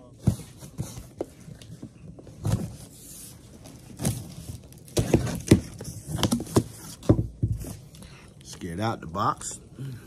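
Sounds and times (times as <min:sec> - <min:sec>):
cardboard scraping and knocking: 0:03.9 - 0:07.9.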